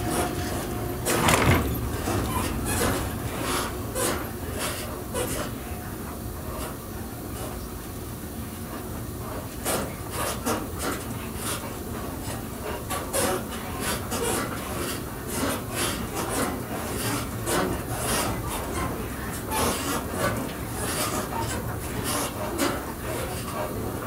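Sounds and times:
scraping and knocking noises: 0.0 - 4.1
train low rumble: 0.0 - 24.0.

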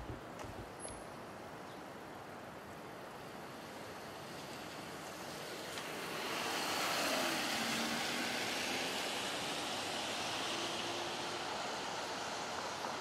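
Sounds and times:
car passing by: 3.6 - 13.0.

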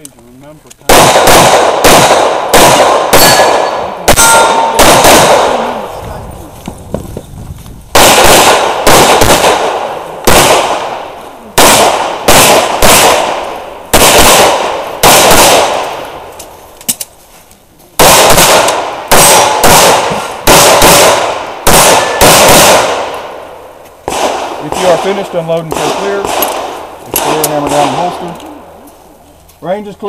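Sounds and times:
pistol shots: 0.9 - 5.9, 7.9 - 16.2, 18.0 - 28.4.

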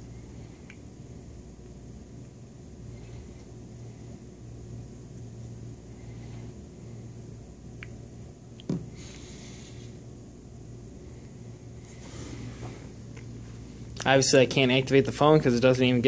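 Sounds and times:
low room hum: 0.0 - 16.0
rustling hiss: 11.1 - 13.9.

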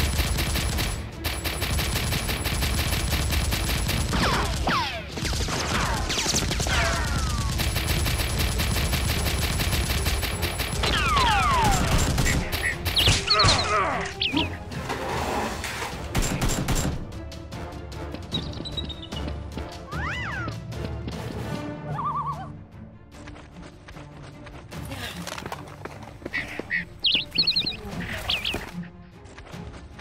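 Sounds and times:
automatic gunfire: 0.0 - 13.2.

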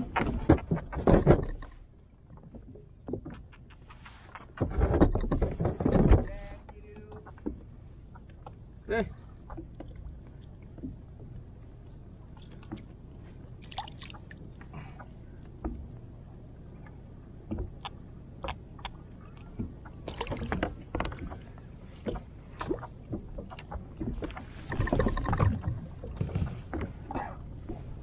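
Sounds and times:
rustling and clattering: 0.0 - 1.8, 3.1 - 7.7
low water and boat noise: 0.0 - 28.0.

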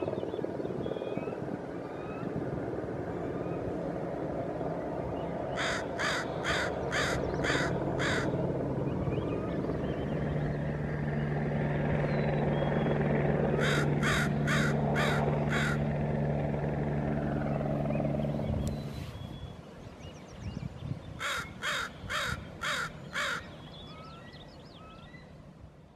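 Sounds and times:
steady low drone: 0.0 - 19.5
crow cawing: 5.6 - 8.4, 13.6 - 15.9, 21.2 - 23.6.

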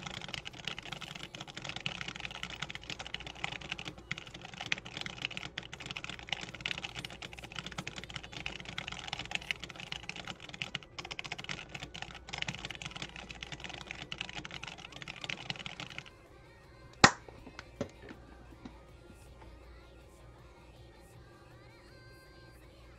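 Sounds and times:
fast typing on mechanical keyboard: 0.0 - 16.2.

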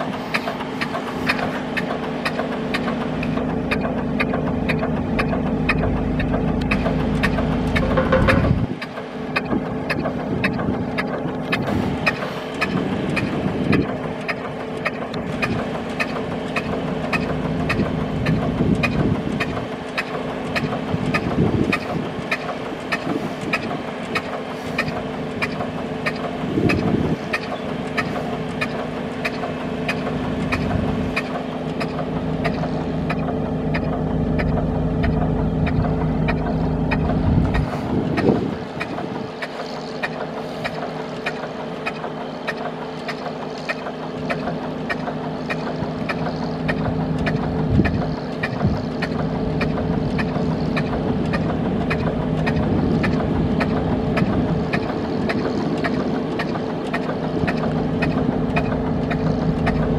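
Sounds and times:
gas engine humming: 0.0 - 59.9
regular sharp ticking: 0.3 - 59.9
wind buffeting microphone: 5.1 - 14.2, 17.6 - 19.9, 20.6 - 27.8, 34.2 - 40.0, 45.8 - 59.9.

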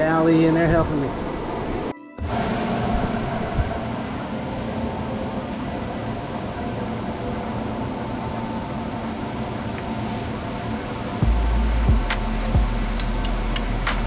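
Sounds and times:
electric blower fan humming: 10.6 - 14.0.

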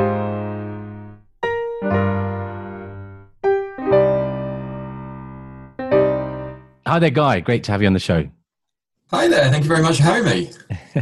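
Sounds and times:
piano keyboard chords jingle: 0.0 - 6.8.

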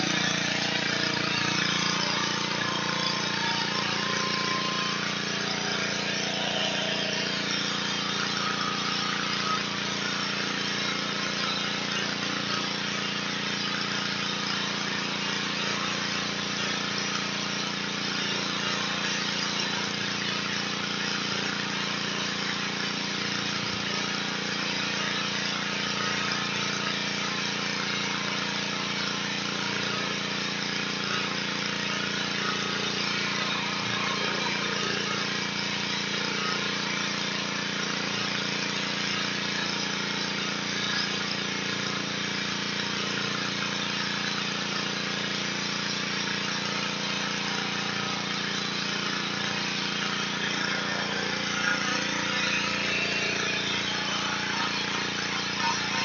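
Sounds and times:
pressure washer engine drone: 0.0 - 56.0
high-pressure water spray hiss: 23.2 - 30.2, 31.0 - 37.0, 43.0 - 56.0.

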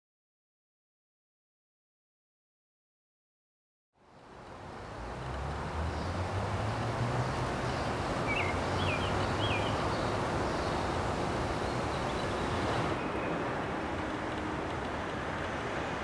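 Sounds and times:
low traffic rumble: 4.0 - 16.0
small bird chirping: 7.4 - 13.4.

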